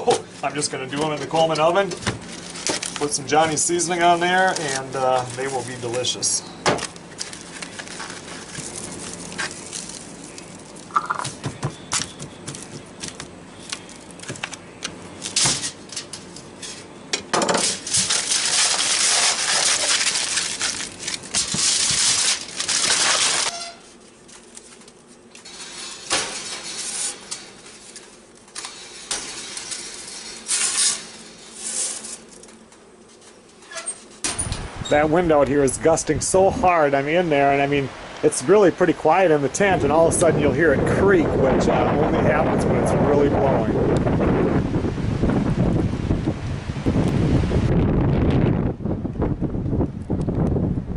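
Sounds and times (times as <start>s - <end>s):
aluminium foil crinkling: 0.2s - 16.9s, 17.6s - 34.2s.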